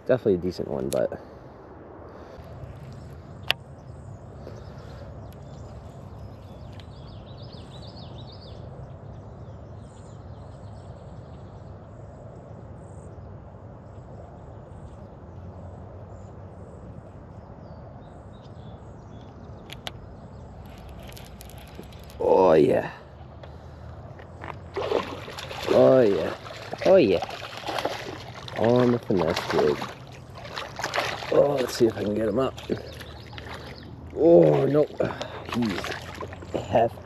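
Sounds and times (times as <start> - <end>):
steady low rumble: 10.7 - 37.0.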